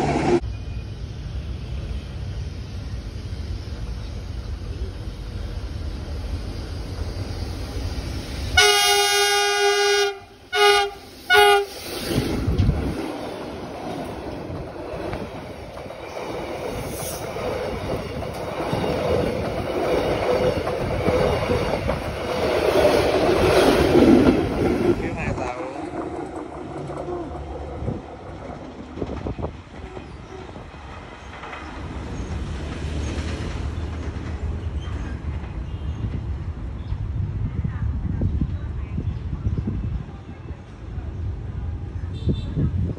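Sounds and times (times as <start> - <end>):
train rumble: 0.0 - 42.9
locomotive air horn blasts: 8.6 - 11.8.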